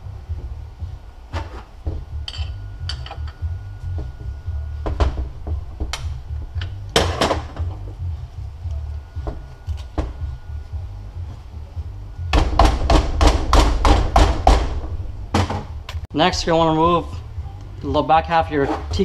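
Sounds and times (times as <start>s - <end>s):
low rumble: 0.0s - 18.6s
metal tools knocking on parts: 1.9s - 3.4s.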